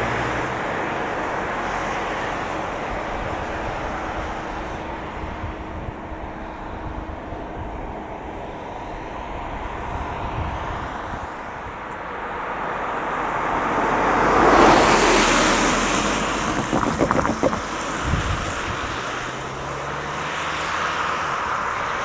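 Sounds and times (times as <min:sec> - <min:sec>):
car driving past: 0:00.0 - 0:22.0
wheels knocking over rails: 0:15.8 - 0:18.6.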